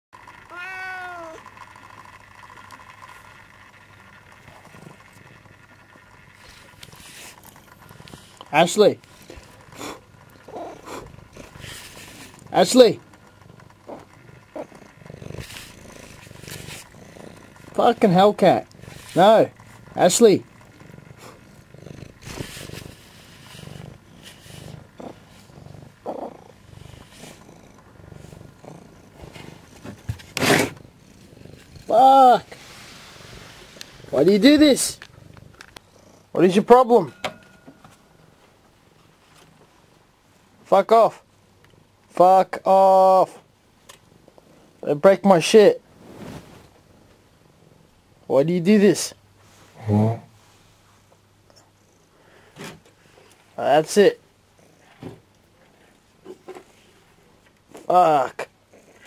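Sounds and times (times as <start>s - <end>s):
cat purring: 0.2s - 39.5s, 44.1s - 59.0s
cat meowing: 0.4s - 1.4s
faint rustling: 45.8s - 47.1s.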